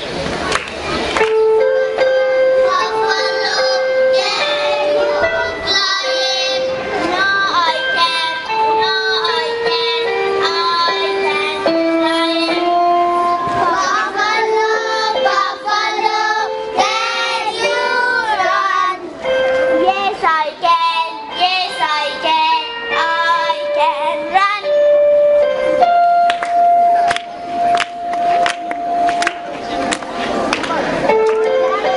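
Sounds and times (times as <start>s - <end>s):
backing music: 0.0s - 31.9s
children singing: 1.9s - 24.8s.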